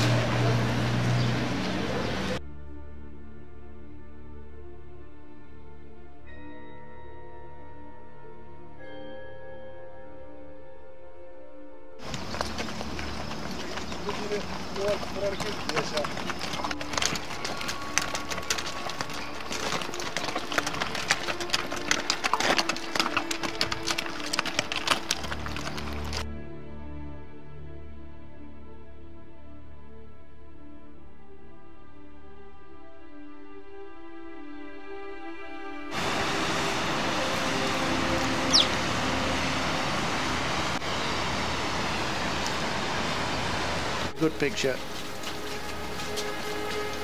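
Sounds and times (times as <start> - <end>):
stream rushing over boulders: 12.0 - 26.2, 35.9 - 47.0
hooves clopping on stony trail: 12.0 - 26.3, 35.9 - 42.7, 44.1 - 47.0.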